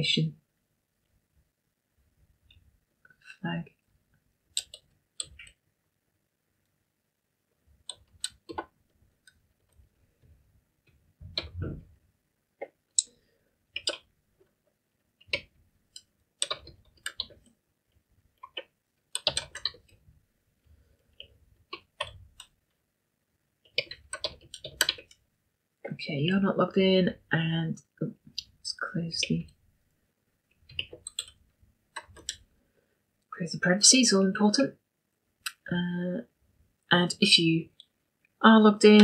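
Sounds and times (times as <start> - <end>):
computer keyboard keystrokes: 4.6 - 5.5, 7.9 - 8.7, 13.8 - 14.0, 15.2 - 17.4, 18.4 - 20.0, 23.7 - 25.2, 30.7 - 31.4, 32.0 - 32.4.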